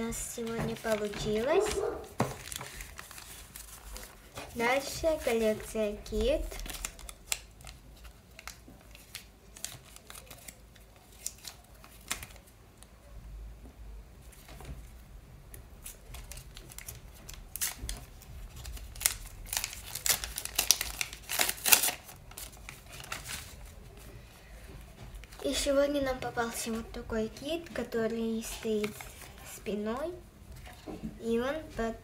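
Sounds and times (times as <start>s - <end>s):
paper crinkling: 0.0s - 12.6s, 15.8s - 25.8s, 27.6s - 29.8s
paper taps and rustles: 0.3s - 10.6s, 15.8s - 24.0s.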